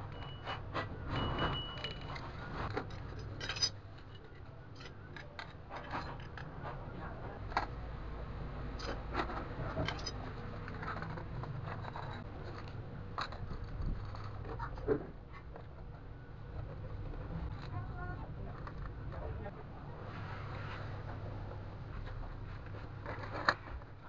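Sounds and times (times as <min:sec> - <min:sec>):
metal clicks and scrapes: 0:00.1 - 0:07.8, 0:08.8 - 0:15.7, 0:22.0 - 0:24.0.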